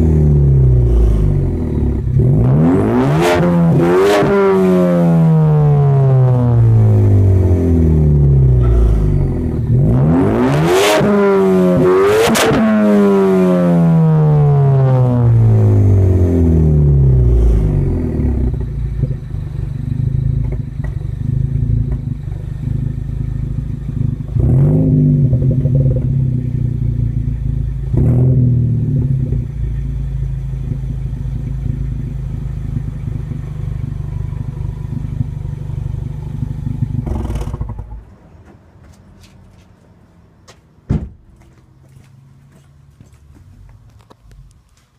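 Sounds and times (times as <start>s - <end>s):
car engine revving: 0.0s - 38.2s
car engine idling: 5.1s - 10.6s, 14.6s - 39.2s.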